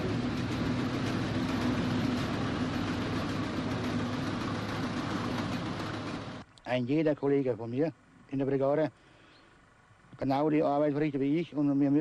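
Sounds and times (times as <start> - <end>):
harvester engine drone: 0.0 - 6.5.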